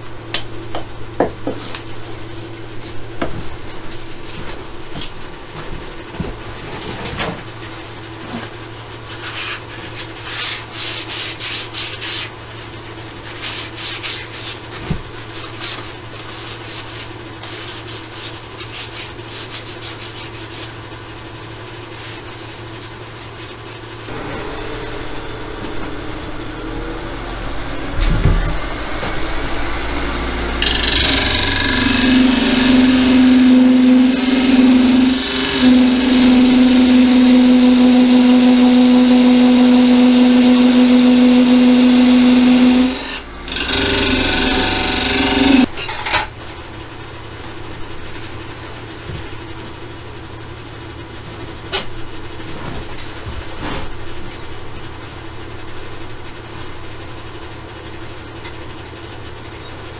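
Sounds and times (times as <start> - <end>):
tool cutting spinning wood: 24.1 - 45.7
wood lathe humming: 24.1 - 45.7.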